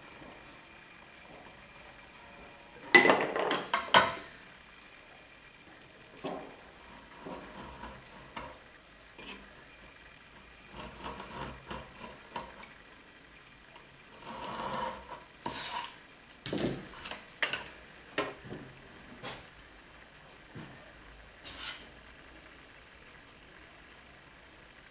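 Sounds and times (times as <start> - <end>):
knife scoring wood veneer: 6.8 - 8.5, 10.8 - 12.6, 14.2 - 16.0, 21.5 - 21.8.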